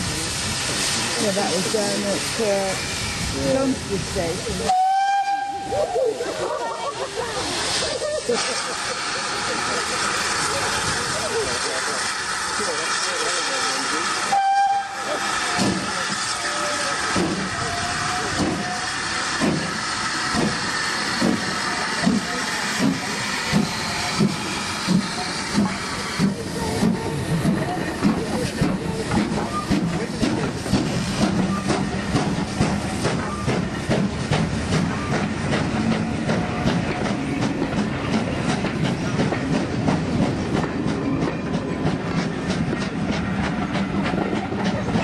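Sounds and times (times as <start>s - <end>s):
steam hiss: 0.0s - 45.0s
steam locomotive exhaust beat: 0.0s - 45.0s
train wheels clattering over rail joints: 18.2s - 45.0s.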